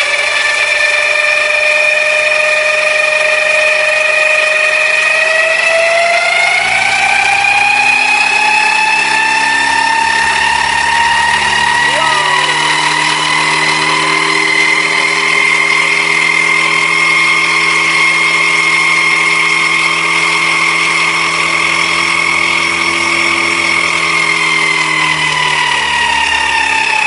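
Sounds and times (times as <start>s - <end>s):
small electric motor whining: 6.1s - 27.0s.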